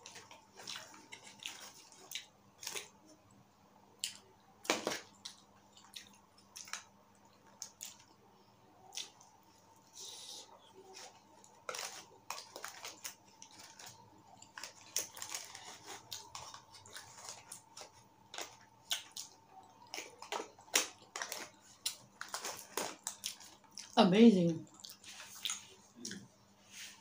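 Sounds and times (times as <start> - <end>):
wet chewing and mouth smacks: 0.0 - 2.9, 4.0 - 4.3, 5.0 - 8.2, 8.8 - 9.3, 11.7 - 24.0, 24.7 - 26.3.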